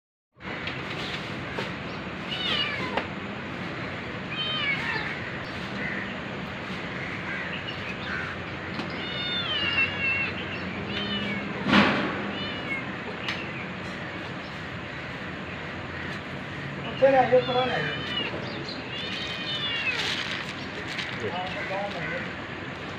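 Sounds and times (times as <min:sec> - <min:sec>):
kitten mewing: 0:09.0 - 0:13.1.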